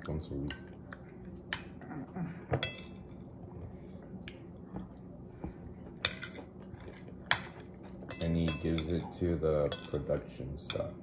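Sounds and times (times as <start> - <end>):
soft chewing: 4.0 - 8.1
fork clinking on ceramic plate: 6.0 - 9.0, 9.7 - 10.9.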